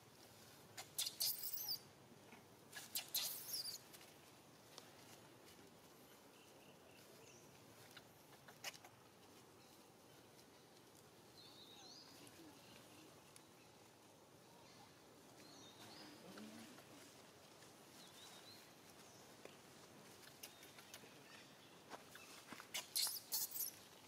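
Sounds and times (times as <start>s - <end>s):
baby monkey squeaking: 0.8s - 1.8s, 2.8s - 3.8s, 22.7s - 23.9s.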